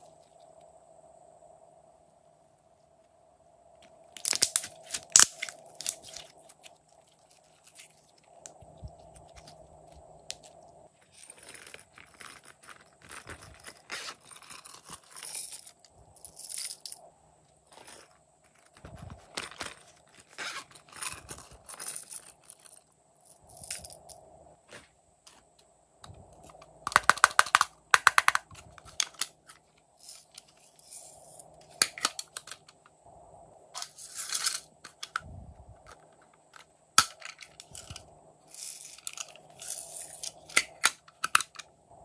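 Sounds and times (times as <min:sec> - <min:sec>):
plastic cases clicking: 0:26.0 - 0:29.6, 0:31.8 - 0:32.8, 0:40.2 - 0:41.7.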